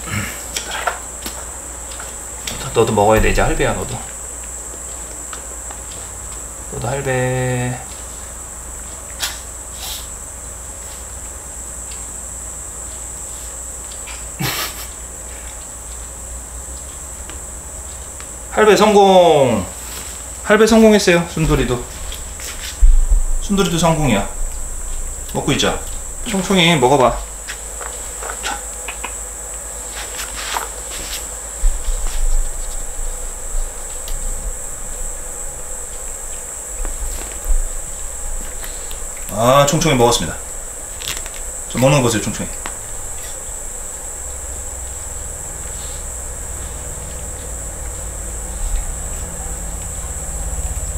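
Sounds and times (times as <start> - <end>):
high-pitched whine: 0.0 - 50.9
low hum: 2.3 - 4.5, 18.8 - 50.9
high-pitched drone: 2.6 - 4.1, 31.6 - 50.9.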